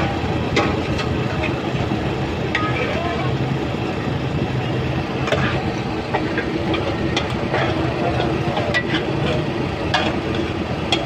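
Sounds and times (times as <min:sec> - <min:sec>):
steady low roar: 0:00.0 - 0:11.0.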